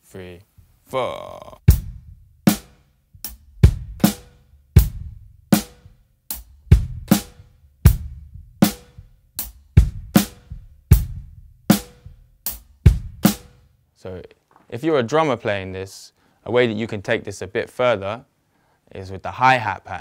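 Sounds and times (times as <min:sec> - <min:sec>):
bass drum kicks: 0:01.7 - 0:13.6
snare drum backbeat: 0:01.7 - 0:13.6.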